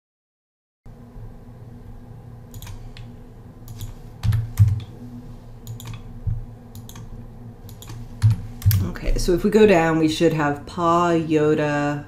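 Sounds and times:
faint steady hum: 0.9 - 12.0
keyboard typing: 2.5 - 3.1, 3.7 - 4.9, 5.6 - 6.1, 6.7 - 7.1, 7.7 - 8.9.

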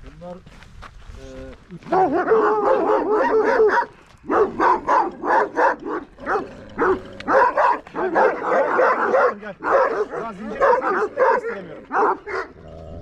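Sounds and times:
dog barking: 1.9 - 12.6.

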